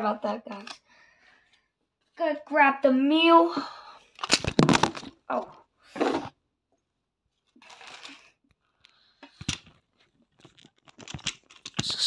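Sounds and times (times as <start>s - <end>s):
camera handling knocks and clatter: 4.2s - 5.2s, 9.4s - 11.8s.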